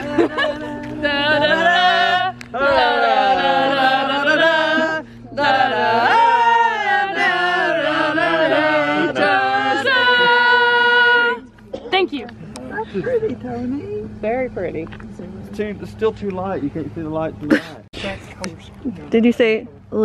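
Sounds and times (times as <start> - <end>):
person singing long wavering notes: 0.0 - 7.8
steady low hum: 0.0 - 20.0.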